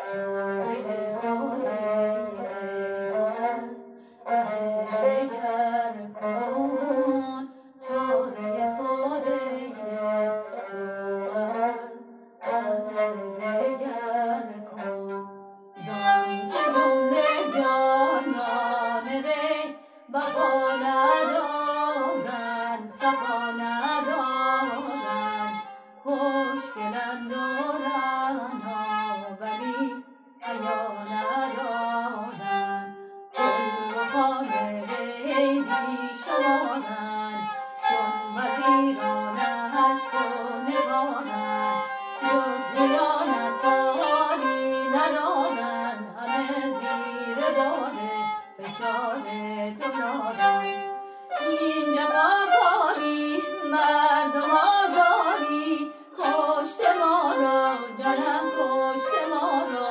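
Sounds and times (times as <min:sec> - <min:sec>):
woman singing: 0:00.0 - 0:50.8, 0:51.4 - 0:59.9
bowed fiddle playing: 0:00.0 - 0:59.9.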